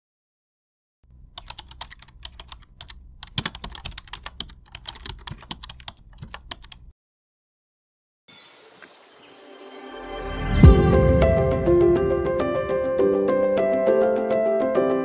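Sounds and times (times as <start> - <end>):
keyboard key clicks: 1.1 - 6.9.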